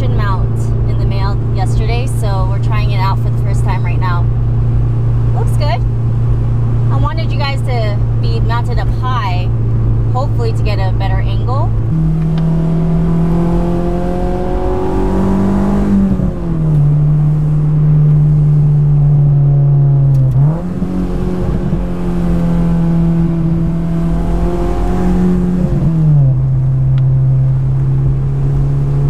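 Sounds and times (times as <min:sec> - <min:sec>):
car engine accelerating through gears: 0:11.7 - 0:29.0.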